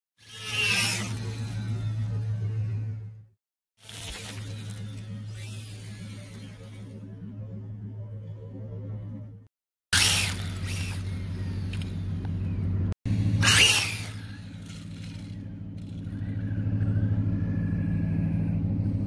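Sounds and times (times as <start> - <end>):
wheelspin and grit spray: 0.2 - 2.7, 3.8 - 7.0, 10.0 - 12.2, 13.2 - 16.4
electric motor whine: 0.2 - 3.2, 3.8 - 8.3, 10.0 - 18.8
toy truck rushing past: 0.2 - 3.2, 3.8 - 7.0, 10.0 - 12.1, 13.2 - 18.5.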